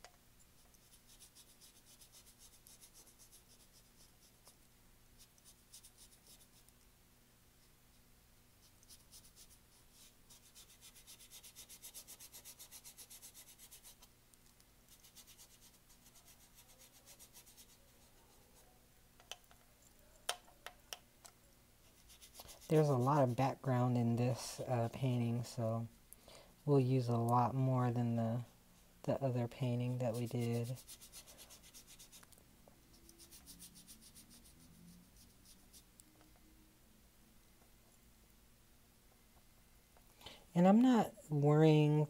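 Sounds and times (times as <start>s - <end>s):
paintbrush scrubbing on canvas: 0.6s - 4.6s, 5.2s - 6.7s, 8.6s - 14.1s, 14.9s - 18.7s, 21.8s - 23.4s, 29.6s - 32.2s, 32.9s - 36.0s.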